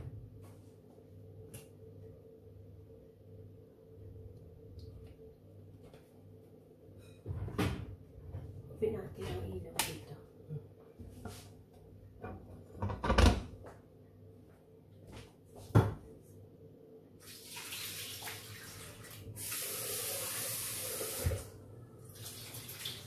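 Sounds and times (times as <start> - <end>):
pan knocking on hob: 12.3 - 13.6.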